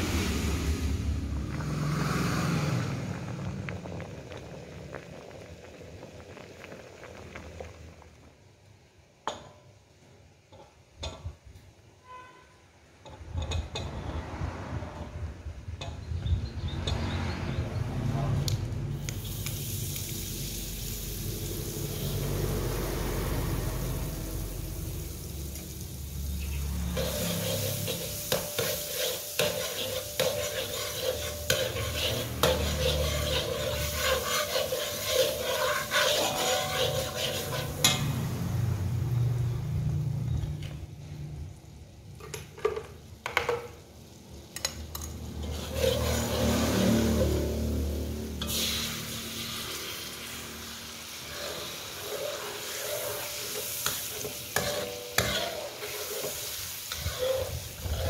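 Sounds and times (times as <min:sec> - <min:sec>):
margarine sizzling in a wok: 0:00.0 - 0:11.3, 0:18.9 - 0:58.0
metal spatula scraping a wok: 0:12.0 - 0:15.2, 0:26.1 - 0:38.7, 0:44.9 - 0:58.0.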